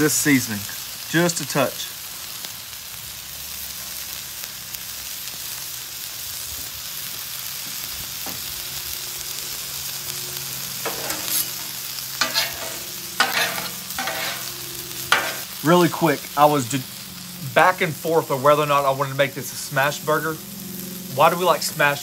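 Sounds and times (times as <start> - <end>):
food sizzling on a griddle: 0.0 - 22.0
metal spatula scraping griddle: 10.6 - 15.6.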